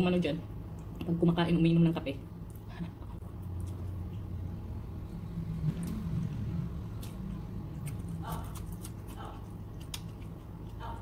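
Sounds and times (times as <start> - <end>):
low background rumble: 0.0 - 11.0
eating by hand: 2.4 - 11.0.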